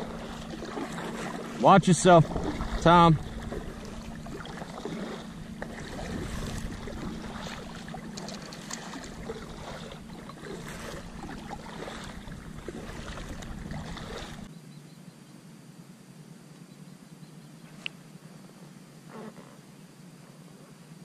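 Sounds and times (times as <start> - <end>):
low rumble: 0.0 - 14.5
water lapping against hull: 0.0 - 14.5
water splashing from paddle: 0.0 - 14.5.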